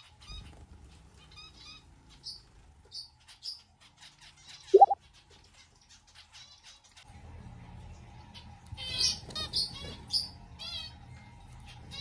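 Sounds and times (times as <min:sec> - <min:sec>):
finch chirping: 0:00.0 - 0:06.8.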